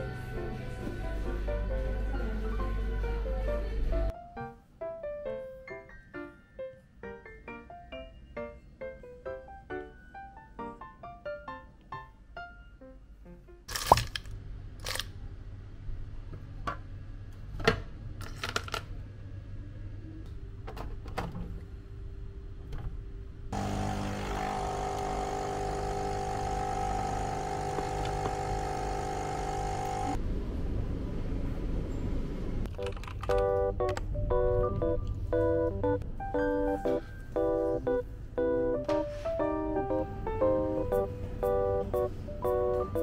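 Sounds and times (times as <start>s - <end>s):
piano music: 0.0s - 13.6s, 32.8s - 43.0s
coffee machine pump running: 23.6s - 30.2s
low hum: 23.6s - 32.7s.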